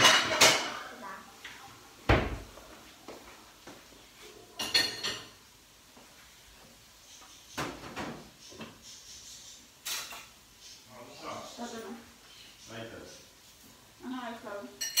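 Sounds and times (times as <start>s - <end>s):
kitchenware clinking with metallic ring: 0.0s - 1.0s, 4.6s - 5.4s, 14.8s - 15.0s
kitchenware knocks and clatters: 0.0s - 1.0s, 2.1s - 2.6s, 4.5s - 5.4s, 7.5s - 8.8s, 14.8s - 15.0s.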